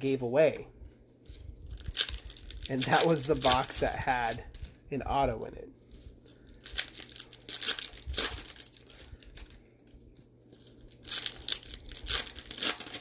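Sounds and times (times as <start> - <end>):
foil wrapper tearing and crinkling: 1.6 - 4.8, 6.0 - 13.0.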